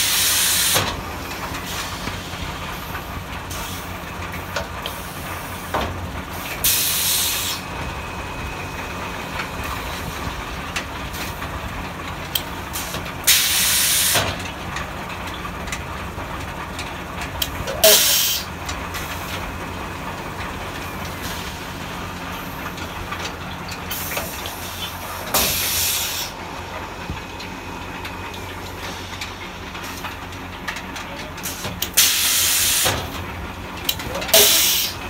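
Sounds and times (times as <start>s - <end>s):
bursts of air hiss: 0.0s - 0.9s, 6.6s - 7.7s, 12.7s - 14.4s, 23.9s - 26.4s, 31.4s - 33.2s, 34.3s - 35.0s.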